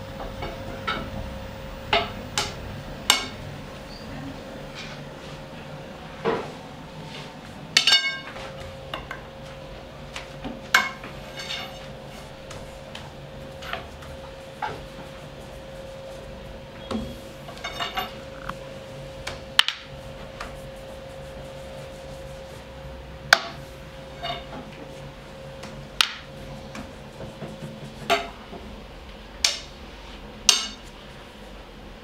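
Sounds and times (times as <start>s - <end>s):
steady hum: 0.0s - 32.0s.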